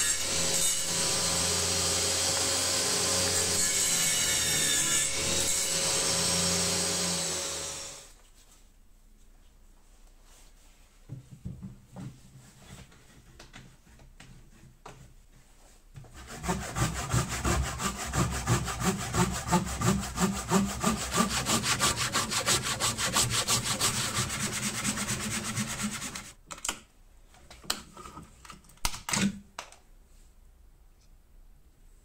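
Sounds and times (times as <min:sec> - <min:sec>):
hand saw cutting wood: 0:00.0 - 0:08.1, 0:16.1 - 0:26.4.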